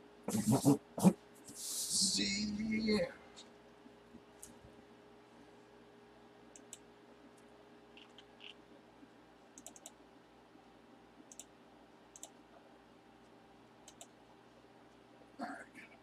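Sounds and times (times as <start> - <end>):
faint steady hum: 0.0 - 16.0
computer mouse clicks: 6.5 - 6.8, 7.9 - 8.6, 9.6 - 10.0, 11.2 - 11.5, 12.1 - 12.4, 13.8 - 14.2.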